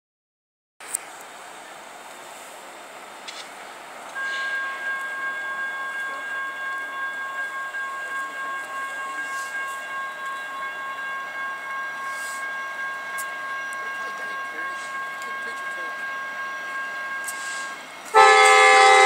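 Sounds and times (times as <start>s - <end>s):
railroad warning signal tone: 4.1s - 19.0s.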